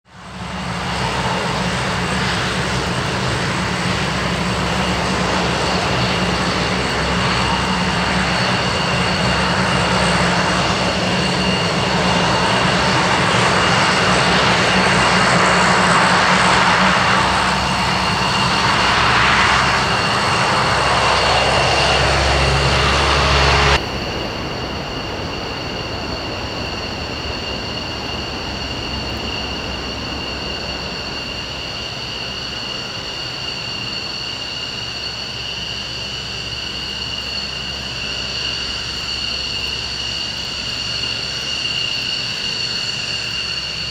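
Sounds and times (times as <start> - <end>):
jet engines roaring: 0.1 - 43.9
high whining tones: 0.4 - 43.9.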